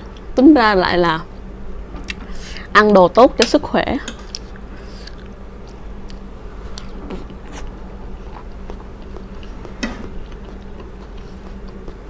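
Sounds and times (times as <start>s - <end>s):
steady low hum: 0.0s - 12.0s
person chewing food: 4.3s - 12.0s.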